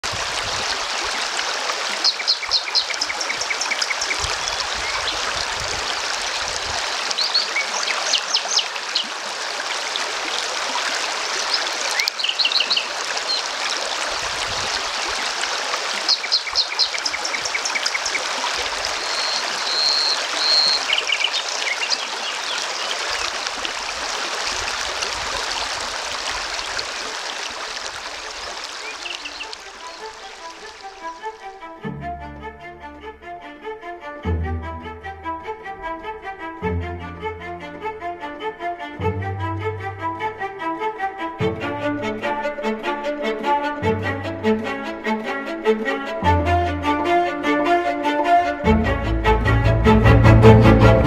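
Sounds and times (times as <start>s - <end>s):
river water rushing over stones: 0.0s - 31.4s
birds calling: 1.8s - 9.2s, 10.3s - 24.8s, 25.4s - 31.4s.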